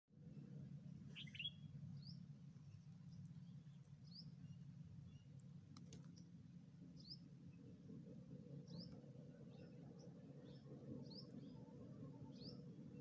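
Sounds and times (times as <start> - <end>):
low steady hum: 0.2 - 13.0
faint bird chirps: 1.1 - 5.3.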